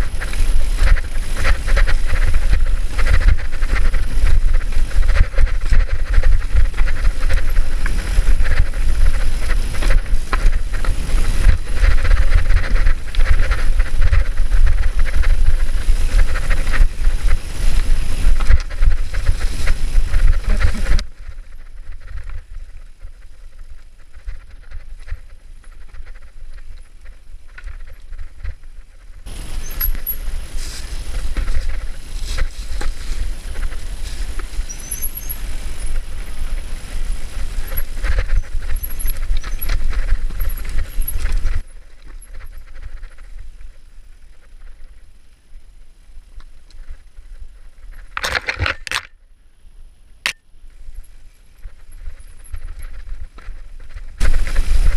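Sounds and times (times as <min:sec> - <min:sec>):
bike rattling: 0:00.0 - 0:54.9
bike tyres crunching over dirt: 0:00.0 - 0:54.9
brake squeal: 0:29.3 - 0:41.4.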